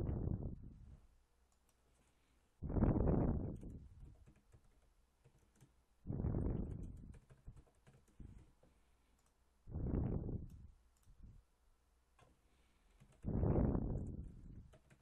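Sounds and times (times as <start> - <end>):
typing on computer keyboard: 3.5 - 5.8, 6.6 - 8.6, 12.9 - 13.3, 14.0 - 15.0
faint clicks: 6.6 - 9.4, 10.4 - 11.2.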